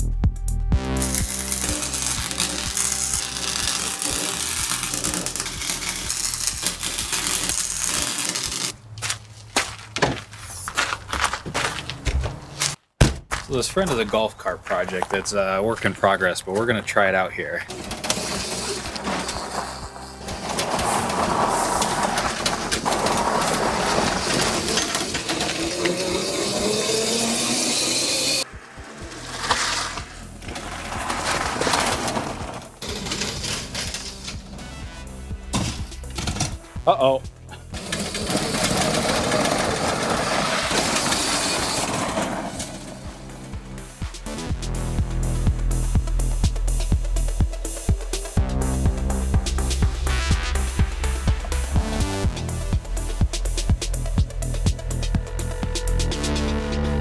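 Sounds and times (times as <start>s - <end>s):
background music with steady beat: 0.0s - 8.7s, 28.0s - 38.3s, 42.1s - 57.0s
arc welder crackling: 0.8s - 9.1s, 17.6s - 36.7s, 37.5s - 44.4s
golf cart motor: 1.0s - 8.8s, 17.7s - 34.4s, 37.5s - 43.8s
clattering and rattling: 17.7s - 28.4s, 29.0s - 34.6s, 35.5s - 36.6s, 37.5s - 43.1s.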